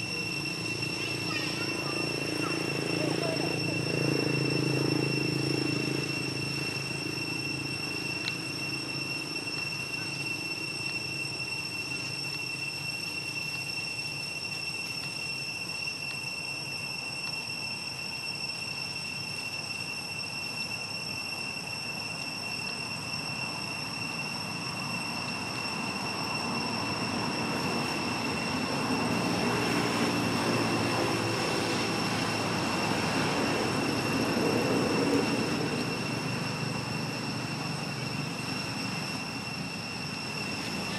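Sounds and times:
low engine-like drone: 0.0 - 40.9
thin high-pitched whine: 0.0 - 40.9.

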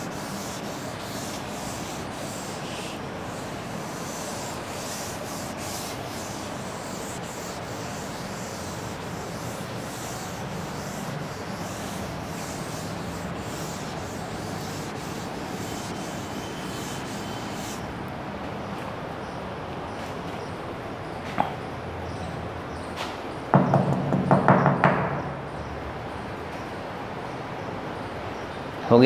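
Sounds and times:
duster rubbing on chalkboard: 0.0 - 17.9.

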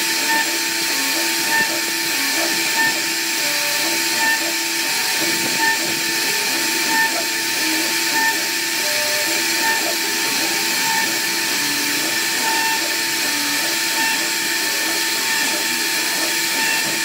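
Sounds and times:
cnc router cutting wood: 0.0 - 17.0.

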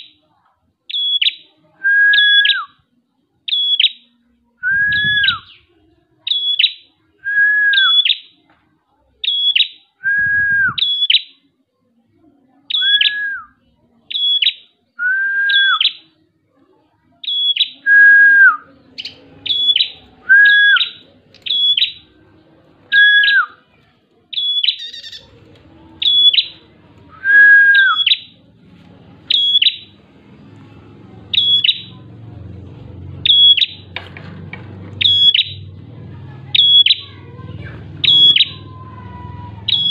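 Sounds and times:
bird singing high whistled notes: 4.6 - 5.6, 9.2 - 11.3, 12.7 - 13.5, 14.1 - 16.0, 17.2 - 22.0, 24.4 - 25.3, 27.2 - 28.4, 29.3 - 29.9, 31.3 - 32.0, 33.2 - 33.8, 35.0 - 35.7, 36.6 - 37.0, 38.0 - 38.7, 39.6 - 39.9.

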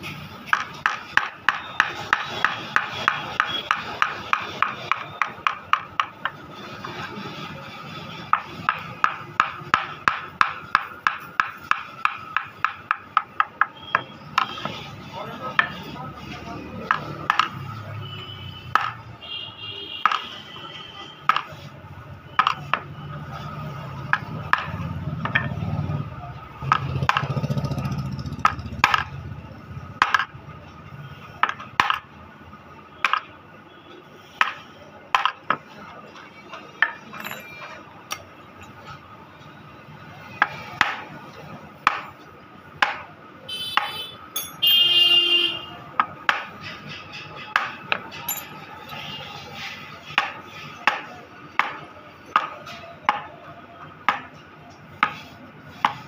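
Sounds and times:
mallet striking chisel: 8.3 - 14.5, 22.4 - 22.8, 50.1 - 51.8.

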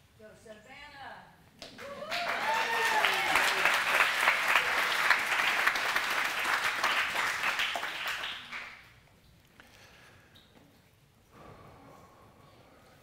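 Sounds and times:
congregation applauding: 1.6 - 8.9.

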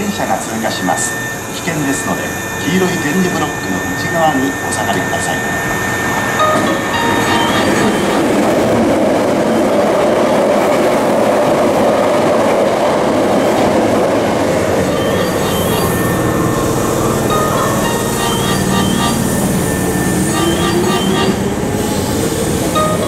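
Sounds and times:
electric train passing at speed: 0.0 - 23.0.

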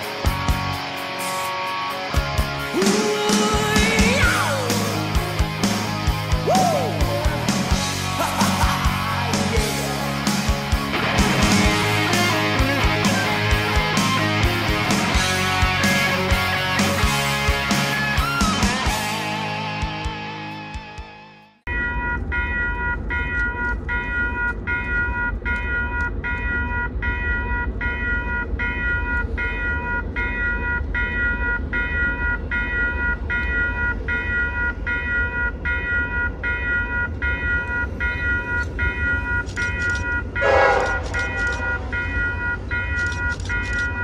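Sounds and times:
crossing bell ringing: 8.8 - 17.4, 21.7 - 44.0
locomotive horn: 40.4 - 42.4.

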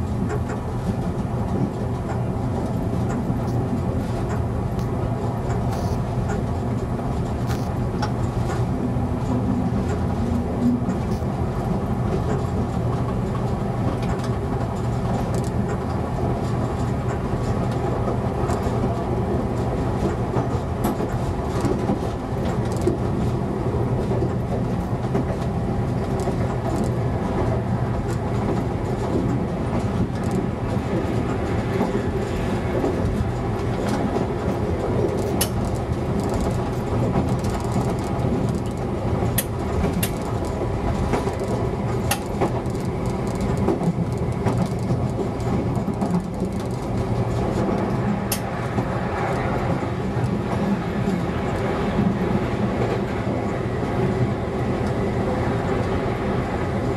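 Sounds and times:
diesel engine drone: 0.0 - 14.6
train wheels rumbling on rail: 0.0 - 56.9
wheels clicking over rail joints: 24.0 - 49.5.

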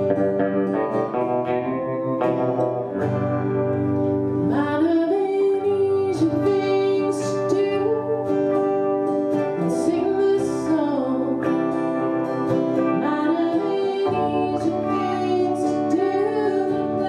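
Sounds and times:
electric guitar: 0.0 - 17.0
strummed acoustic guitar: 0.0 - 17.0
woman singing: 4.4 - 17.0.

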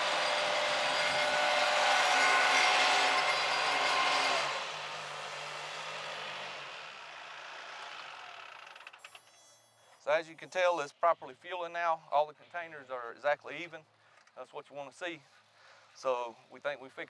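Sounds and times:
tractor diesel engine under load: 0.0 - 8.9.

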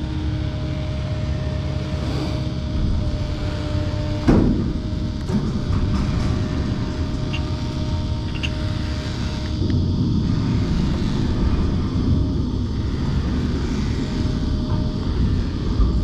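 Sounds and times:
faint steady whine: 0.0 - 16.0
engine idling: 2.6 - 16.0.

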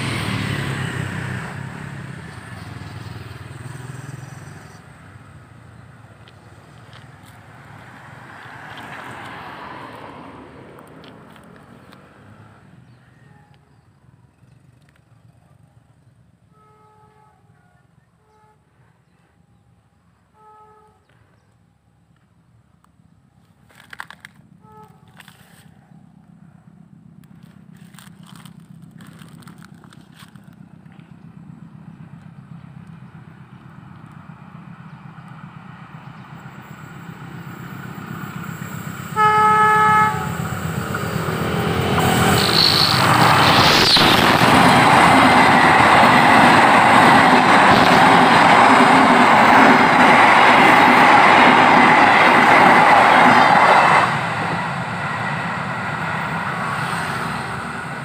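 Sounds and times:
train wheel and rail noise: 0.0 - 58.0
train horn: 13.1 - 13.8, 16.4 - 19.3, 20.3 - 21.2, 24.6 - 25.7, 39.0 - 40.8
distant engine rumble: 22.6 - 58.0.

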